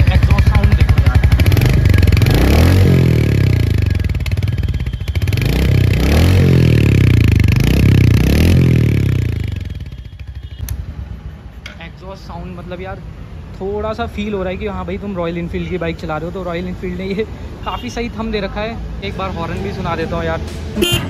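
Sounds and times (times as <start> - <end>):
motorcycle engine idling and revving: 0.0 - 11.4.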